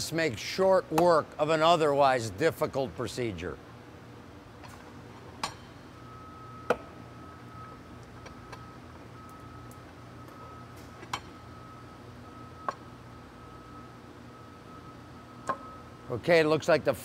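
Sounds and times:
faint high beep: 6.0 - 10.7, 13.4 - 16.0.

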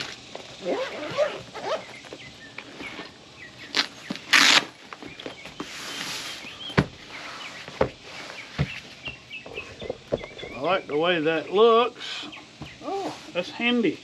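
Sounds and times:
loud ripping sound: 3.7 - 4.8.

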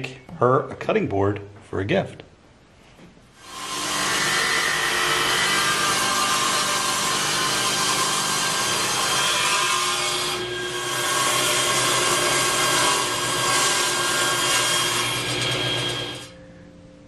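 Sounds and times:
table saw cutting wood: 3.4 - 16.4.

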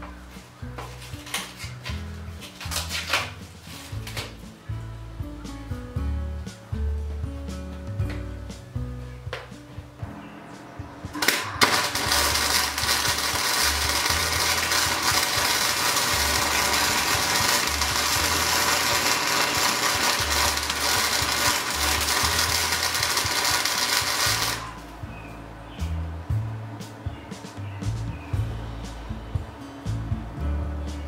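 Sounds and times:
welding arc crackling: 11.2 - 24.9.

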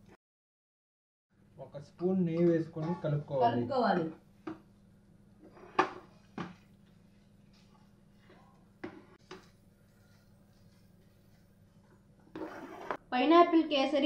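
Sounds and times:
spatula scraping frying pan: 5.4 - 6.4, 12.3 - 13.0.

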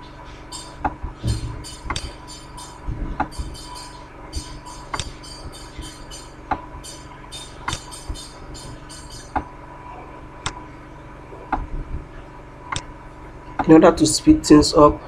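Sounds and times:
electrical hum and hiss: 0.0 - 15.0
computer mouse clicking: 0.6 - 6.2, 7.4 - 9.4.

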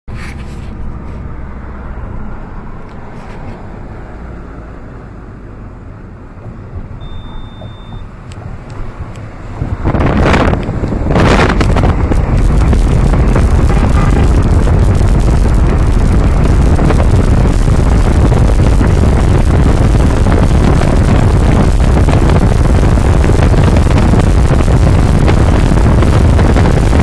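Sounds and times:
car road and engine rumble: 0.1 - 27.0
wind buffeting microphone: 8.4 - 27.0.

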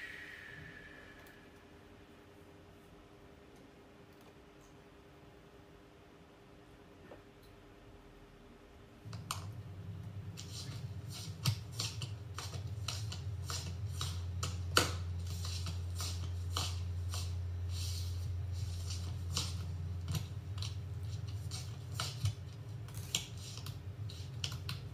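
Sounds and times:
low hum: 0.0 - 3.3.

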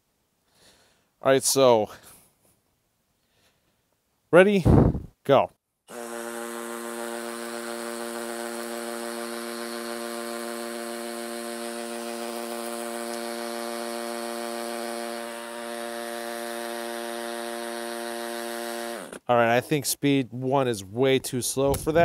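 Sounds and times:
hammer drill drilling concrete: 5.9 - 19.3.

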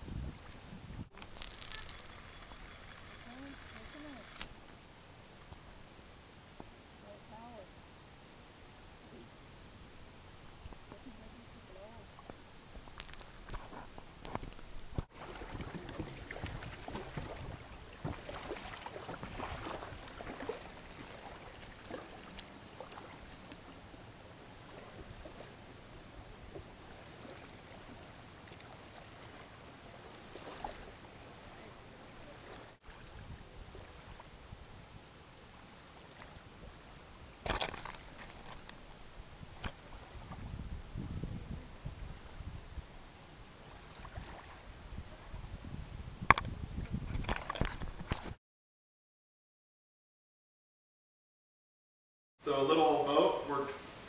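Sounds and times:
water lapping and splashing: 10.3 - 34.8, 35.4 - 42.6, 43.6 - 45.7.

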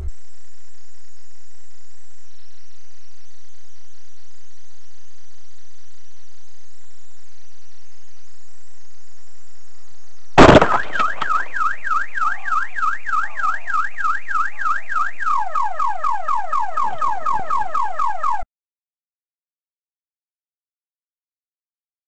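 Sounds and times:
loud bang: 10.4 - 11.7
car alarm siren warbling: 10.4 - 18.5.

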